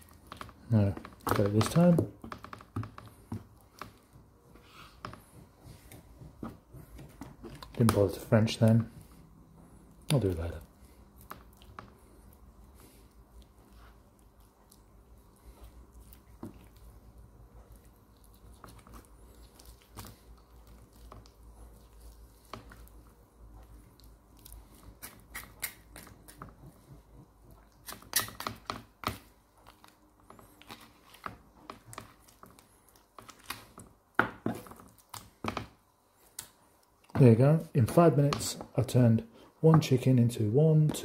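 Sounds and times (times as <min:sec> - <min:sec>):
knife cutting and tearing raw chicken: 0:09.9 - 0:34.0.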